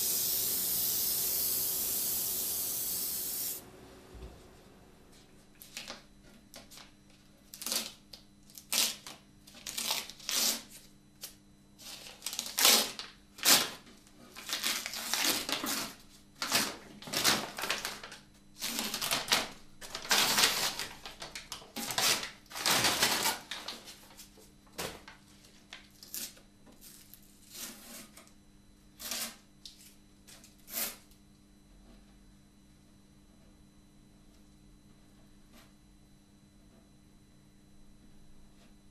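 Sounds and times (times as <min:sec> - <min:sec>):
masking paper crumpling: 0:16.4 - 0:24.4.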